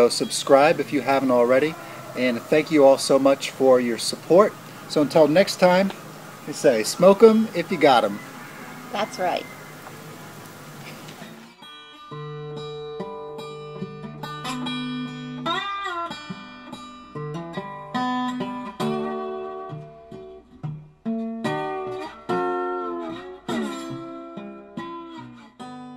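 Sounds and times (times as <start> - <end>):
solo acoustic guitar: 8.2 - 25.9.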